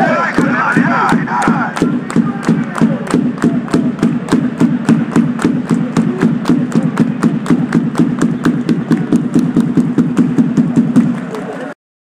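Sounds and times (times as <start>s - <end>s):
crowd chanting: 0.0s - 2.8s
fast steady beat of hits: 0.0s - 11.4s.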